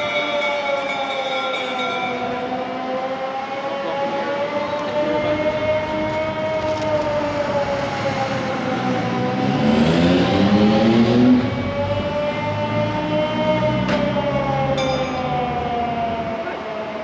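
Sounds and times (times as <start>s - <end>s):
air raid siren wailing: 0.0s - 17.0s
passing vehicle engine: 3.9s - 16.3s.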